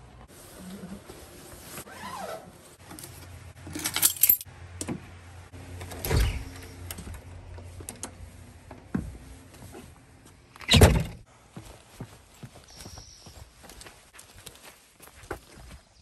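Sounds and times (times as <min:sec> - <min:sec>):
keys jangling: 0:03.7 - 0:04.5
door banging shut: 0:10.7 - 0:11.2
door thud: 0:10.7 - 0:11.2.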